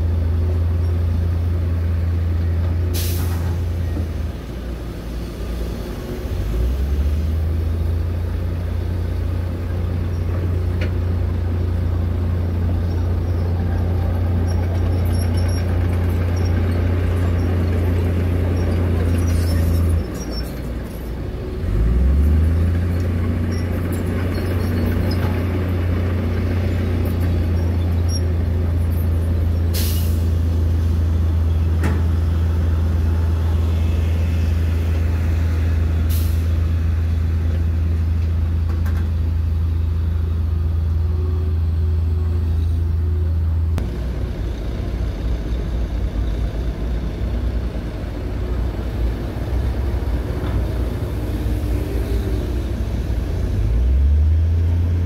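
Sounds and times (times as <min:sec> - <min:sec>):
heavy diesel engines droning: 0:00.0 - 0:55.0
air brake hisses: 0:02.9 - 0:03.8, 0:29.7 - 0:30.4, 0:36.1 - 0:36.6.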